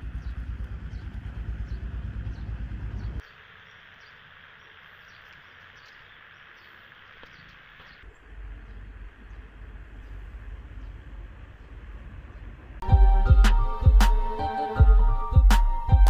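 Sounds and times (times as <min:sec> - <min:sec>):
insects hissing: 0:03.2 - 0:08.1
low rumbling noise: 0:08.1 - 0:16.0.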